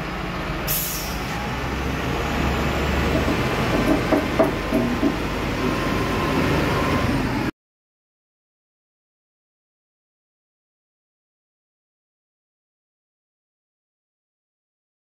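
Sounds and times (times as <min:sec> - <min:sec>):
diesel engine running: 0:00.0 - 0:07.5
short hiss: 0:00.7 - 0:01.3
metal clanks: 0:03.1 - 0:05.3.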